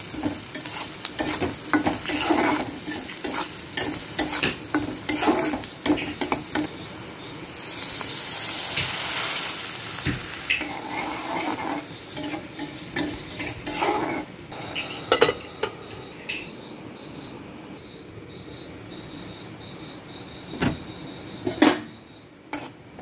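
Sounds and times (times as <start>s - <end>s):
onions sizzling in oil: 0.0s - 16.2s, 18.2s - 23.0s
metal spatula scraping pan: 0.1s - 6.7s, 10.5s - 15.7s, 22.5s - 23.0s.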